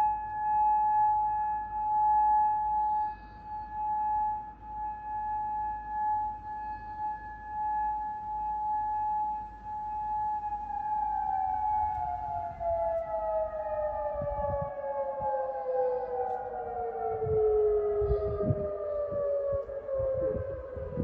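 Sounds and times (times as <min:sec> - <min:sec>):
warning siren steady tone: 0:00.0 - 0:21.0.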